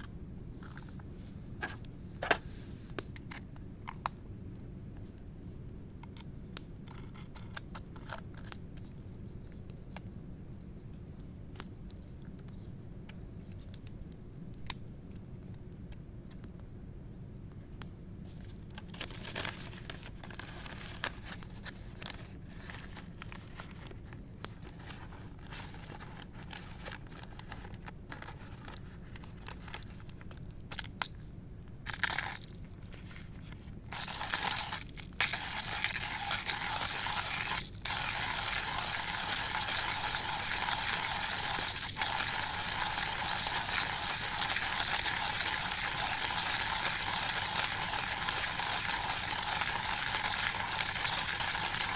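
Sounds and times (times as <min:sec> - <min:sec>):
coffee grinder grinding beans: 0:31.9 - 0:32.4, 0:33.9 - 0:51.9.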